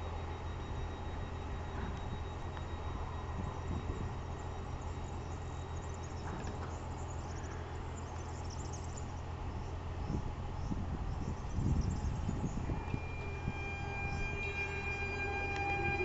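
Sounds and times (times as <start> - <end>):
electric train humming: 0.0 - 16.0
faint high chirps: 11.8 - 16.0.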